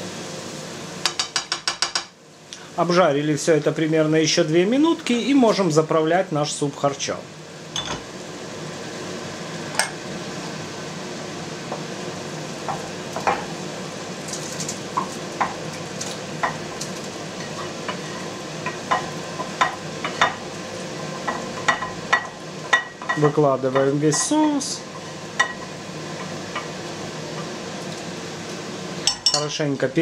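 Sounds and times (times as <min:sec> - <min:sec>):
sizzling hiss: 0:02.4 - 0:30.0
wooden spatula scraping a pan: 0:17.4 - 0:20.4.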